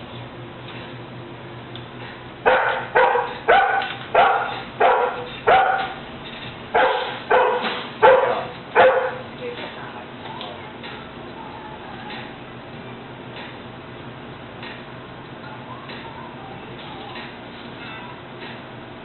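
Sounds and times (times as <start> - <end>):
dog barking: 2.4 - 6.0, 6.7 - 9.2.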